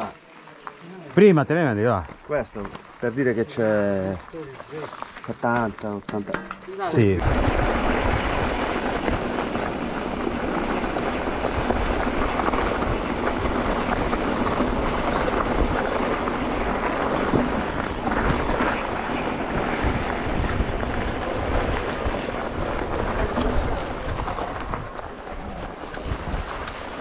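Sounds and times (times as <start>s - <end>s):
bike tyres rumbling on trail: 0.0s - 27.0s
wind across microphone: 7.1s - 27.0s.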